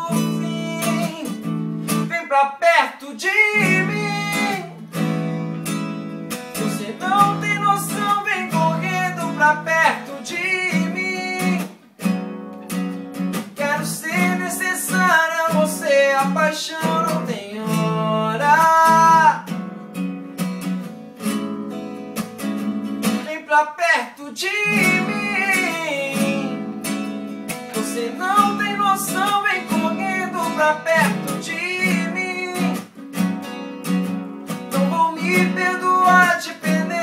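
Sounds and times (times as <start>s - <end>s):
man singing: 0.0s - 4.8s, 6.6s - 11.8s, 13.5s - 19.6s, 23.0s - 33.0s, 34.7s - 37.0s
acoustic guitars strummed: 0.0s - 37.0s.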